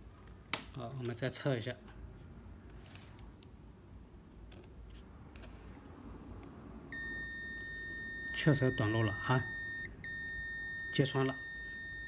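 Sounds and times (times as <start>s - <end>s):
multimeter high beep: 6.9s - 12.0s.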